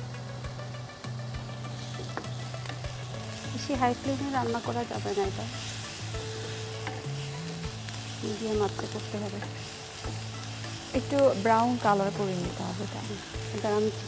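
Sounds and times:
background music: 0.0s - 14.0s
onions sizzling in hot oil: 0.0s - 14.0s
spatula scraping a pan: 1.6s - 11.3s.

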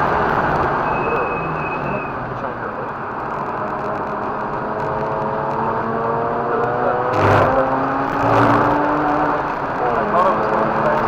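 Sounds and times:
rotary engine accelerating: 3.6s - 11.0s.

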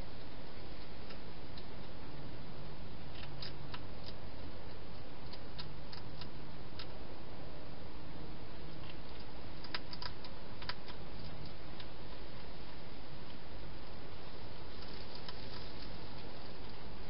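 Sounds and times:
steady hiss: 0.0s - 17.0s
hedgehog crunching dry food: 3.1s - 7.0s, 8.7s - 16.8s.

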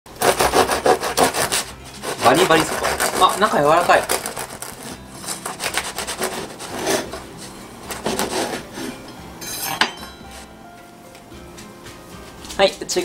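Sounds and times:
bread knife sawing crust: 0.1s - 9.0s.

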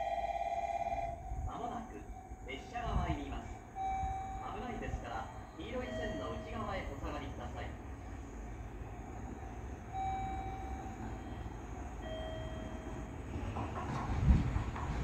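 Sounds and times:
diesel locomotive rumble: 0.8s - 15.0s
faint held tones: 3.8s - 4.6s.

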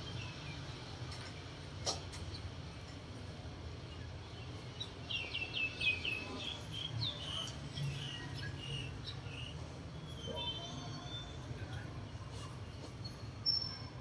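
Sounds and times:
bird chirping: 3.8s - 11.8s, 12.8s - 14.0s.

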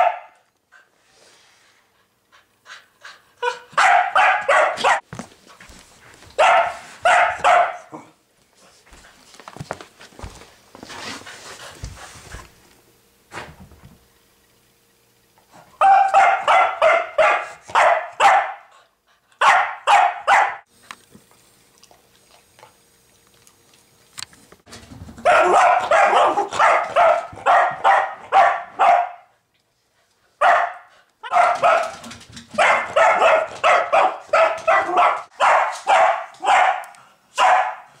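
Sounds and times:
dog barking: 0.0s - 0.4s, 3.4s - 5.0s, 6.4s - 8.1s, 15.8s - 18.7s, 19.4s - 20.7s, 25.2s - 29.3s, 30.4s - 38.0s.

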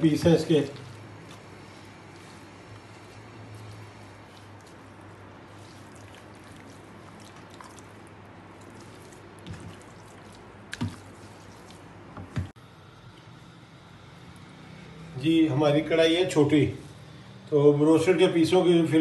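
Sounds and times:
wet paste squishing: 0.0s - 15.1s.

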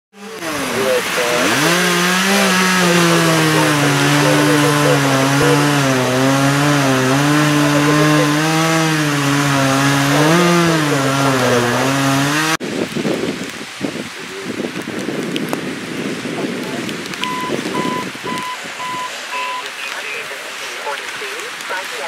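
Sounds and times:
chainsaw cutting wood: 0.2s - 12.6s.

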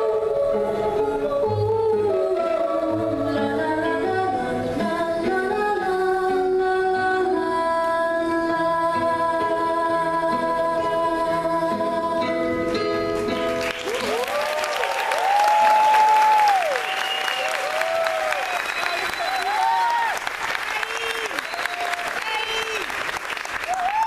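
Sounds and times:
song with held sung notes: 0.0s - 13.6s
audience applause and cheers: 13.4s - 24.0s.

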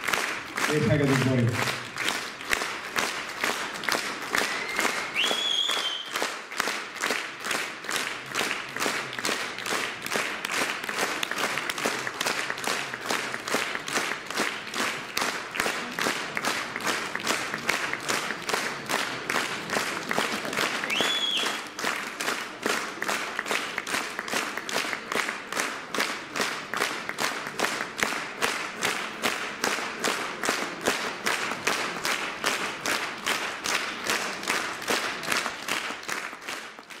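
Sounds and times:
audience clapping in unison: 0.0s - 37.0s
short high whistle: 4.4s - 6.2s, 20.9s - 21.6s.

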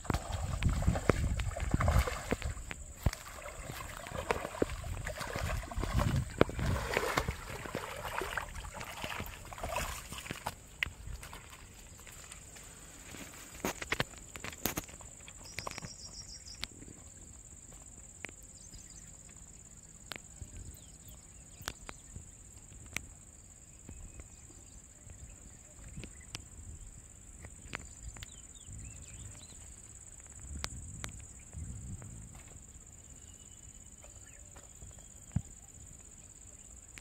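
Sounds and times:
clicks and taps handling fish: 5.7s - 6.7s.

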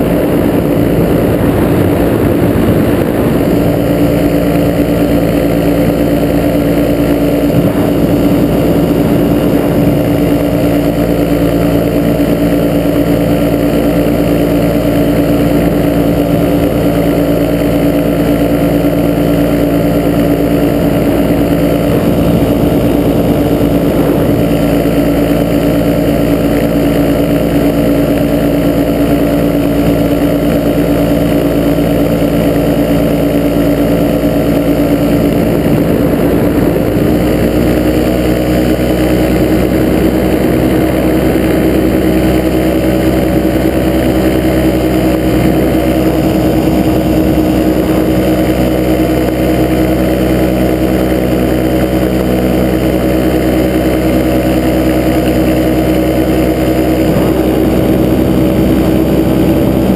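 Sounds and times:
ultralight aircraft engine drone: 0.0s - 59.9s
wind noise: 0.0s - 59.9s.

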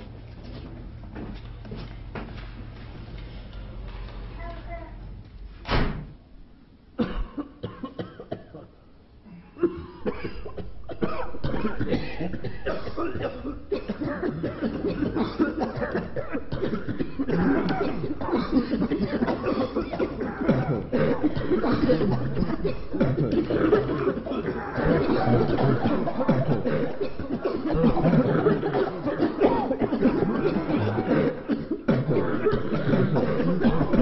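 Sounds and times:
man coughing: 7.0s - 34.0s.

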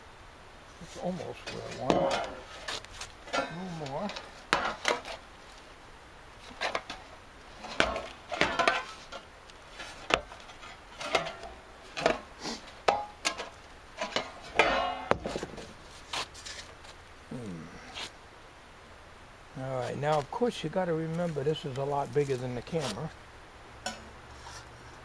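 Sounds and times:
sheet metal clanking and rattling: 1.4s - 2.4s, 14.0s - 15.8s.

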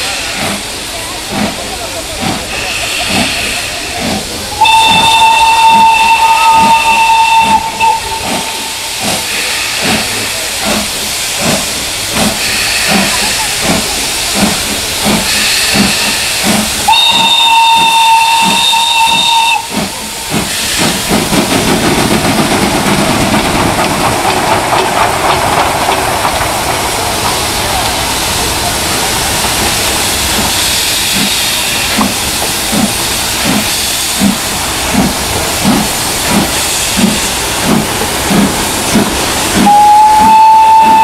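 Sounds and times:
loud hiss of steam: 0.0s - 41.0s
steam locomotive exhaust chuffs: 0.0s - 41.0s
steam whistle blasts: 4.6s - 9.0s, 15.4s - 19.8s, 39.6s - 41.0s.

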